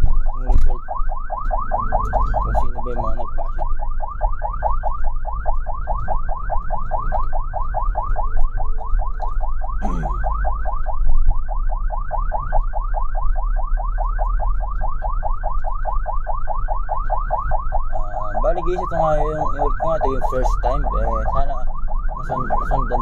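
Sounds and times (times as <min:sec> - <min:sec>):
ambulance siren yelping: 0:00.0 - 0:23.0.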